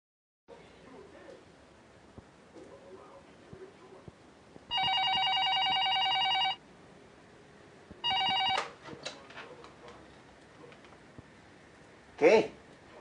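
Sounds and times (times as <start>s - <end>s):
telephone ringing: 4.7s - 6.6s, 8.0s - 8.8s.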